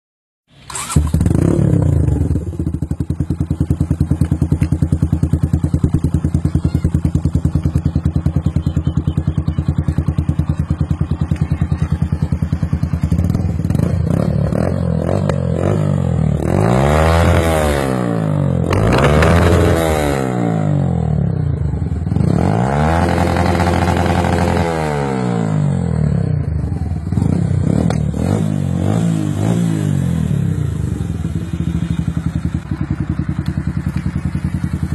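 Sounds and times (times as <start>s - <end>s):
motorcycle engine idling and revving: 0.5s - 34.9s.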